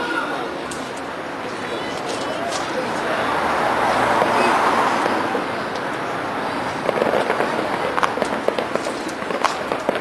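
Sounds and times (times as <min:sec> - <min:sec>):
fireworks crackling pops: 0:01.9 - 0:03.2, 0:06.7 - 0:10.0
fireworks rushing noise: 0:06.2 - 0:10.0.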